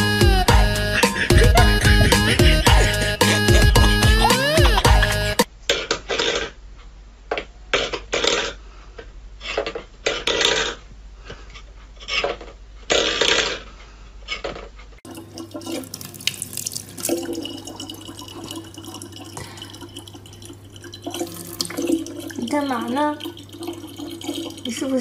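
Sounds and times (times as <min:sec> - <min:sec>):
tap water running into plastic bottle: 0:15.1 - 0:25.0.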